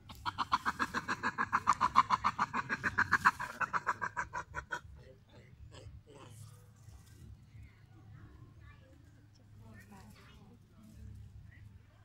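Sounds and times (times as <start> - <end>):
animal chattering call: 0.1 - 4.9.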